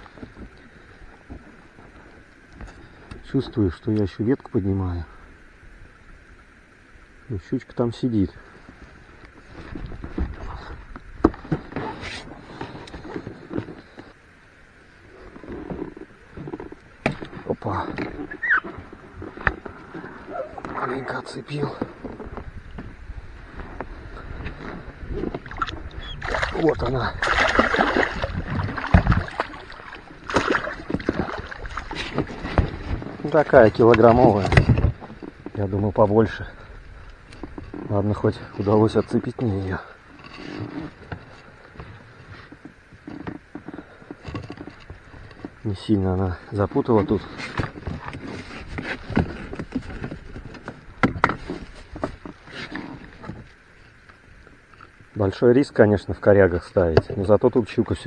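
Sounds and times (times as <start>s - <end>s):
knocks and rustles in a boat: 0.0s - 4.4s, 8.5s - 14.2s, 15.2s - 58.0s
fish thrashing and splashing: 25.2s - 33.6s.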